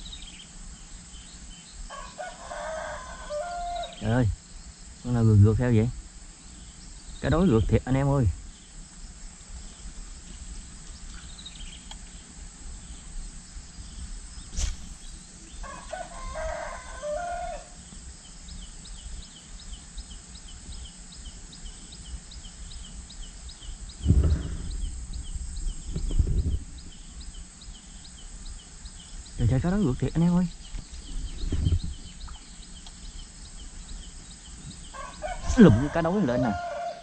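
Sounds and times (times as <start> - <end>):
rooster crowing: 1.9 - 4.1, 15.5 - 17.8, 34.9 - 37.0
sharp click: 14.5 - 15.1
low rumbling thumps: 24.0 - 27.1, 30.8 - 32.3.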